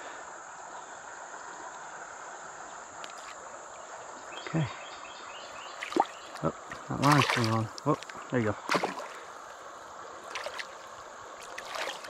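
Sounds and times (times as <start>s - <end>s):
flowing river water: 0.0s - 12.0s.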